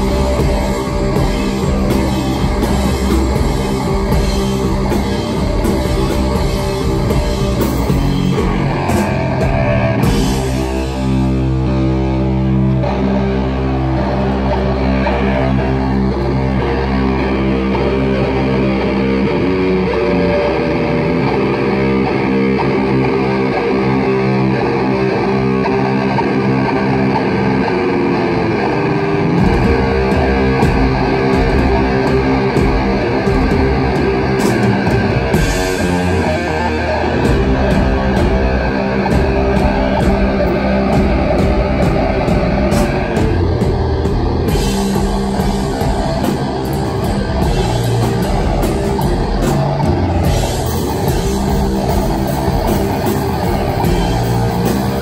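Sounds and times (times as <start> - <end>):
distorted electric guitar: 0.0 - 55.0
droning bass: 0.0 - 55.0
drums: 0.0 - 55.0.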